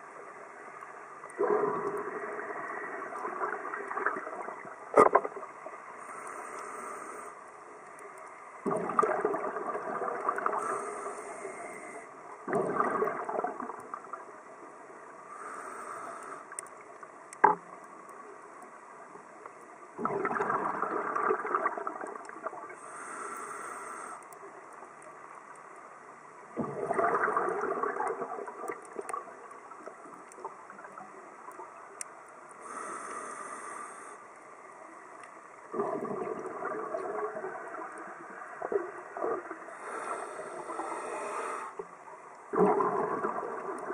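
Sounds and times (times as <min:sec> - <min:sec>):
diver breathing through regulator: 0:06.0 - 0:07.4, 0:10.5 - 0:12.1, 0:15.3 - 0:16.6, 0:22.8 - 0:24.2, 0:32.6 - 0:34.2, 0:39.7 - 0:41.8
bubbling exhaled air: 0:08.6 - 0:13.8, 0:20.0 - 0:24.2, 0:26.6 - 0:28.8, 0:35.7 - 0:37.7, 0:42.5 - 0:43.9.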